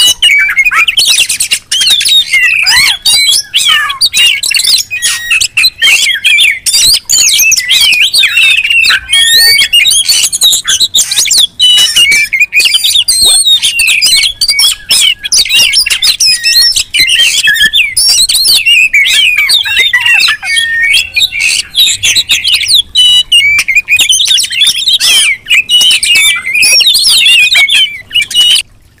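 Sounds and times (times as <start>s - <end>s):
birds singing and calling: 0.0s - 28.7s.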